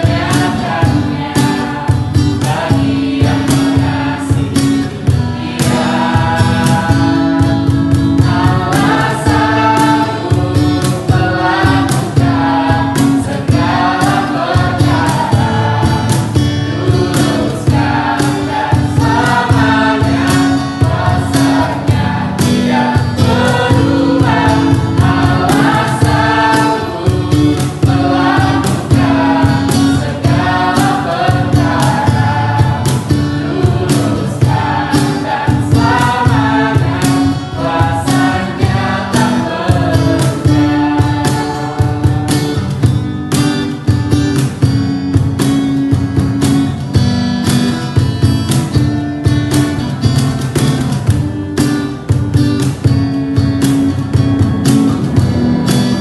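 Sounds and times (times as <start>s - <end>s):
group of voices singing: 0.0s - 44.8s
acoustic guitar: 0.0s - 56.0s
cajon beat: 0.0s - 56.0s.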